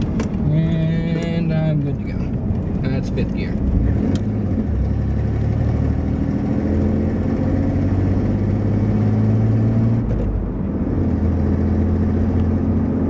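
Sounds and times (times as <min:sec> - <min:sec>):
pickup engine running: 0:00.0 - 0:06.4.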